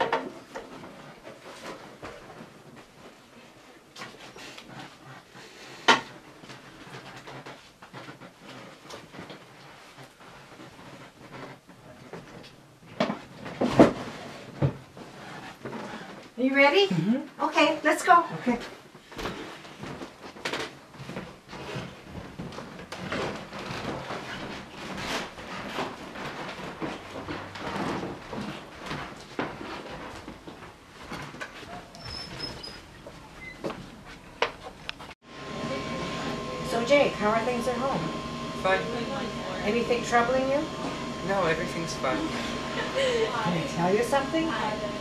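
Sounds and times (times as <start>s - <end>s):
footsteps indoors: 18.1s - 35.2s.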